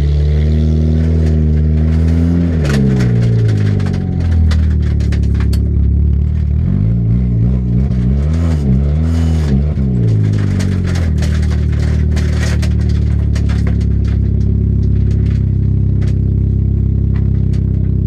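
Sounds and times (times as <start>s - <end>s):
car engine revving: 0.0s - 18.0s
clicks and knocks from interior: 1.0s - 6.0s, 7.8s - 16.4s.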